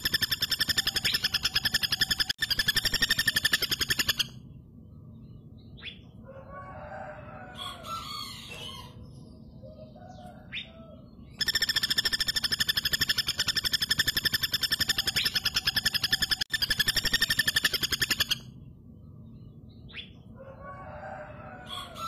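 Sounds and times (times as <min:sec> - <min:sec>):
woodpecker rattling trill: 0:00.0 - 0:04.4, 0:11.3 - 0:18.6
other birds calling: 0:00.0 - 0:18.6.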